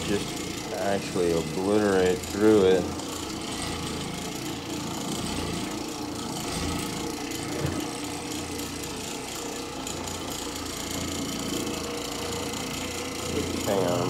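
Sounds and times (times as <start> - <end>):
floor machine humming: 0.0 - 14.0.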